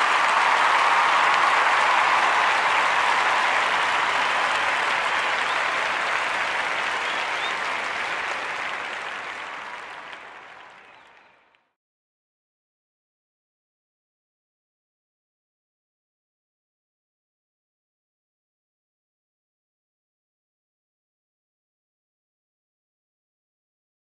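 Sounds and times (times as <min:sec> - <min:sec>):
audience applause: 0:00.0 - 0:11.7.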